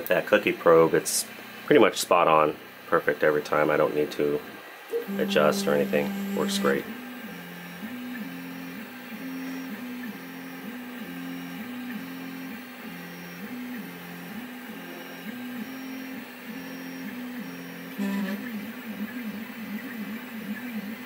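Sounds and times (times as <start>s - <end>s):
printer motor whine: 4.9s - 21.0s.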